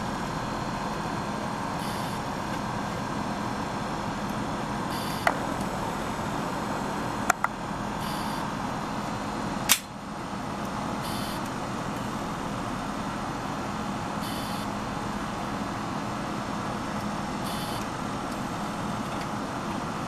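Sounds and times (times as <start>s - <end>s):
steady background noise: 0.0s - 20.0s.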